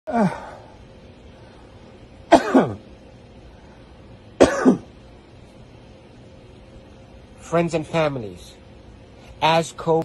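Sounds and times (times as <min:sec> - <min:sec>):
man coughing: 0:02.3 - 0:02.9, 0:04.4 - 0:04.9.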